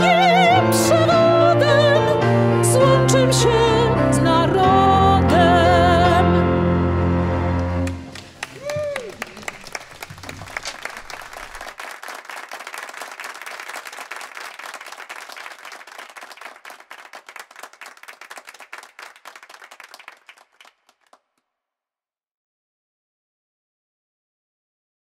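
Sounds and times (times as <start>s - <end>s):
audience applauding: 7.6s - 21.2s.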